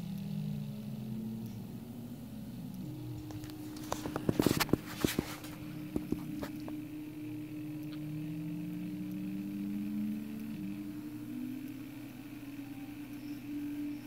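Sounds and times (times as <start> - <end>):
stepper motors whining: 0.0 - 14.0.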